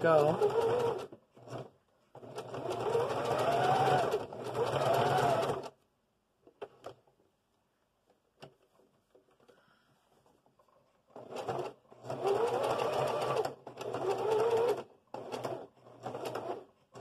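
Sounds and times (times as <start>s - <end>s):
electric sewing machine stitching: 0.0s - 5.8s, 11.1s - 17.0s.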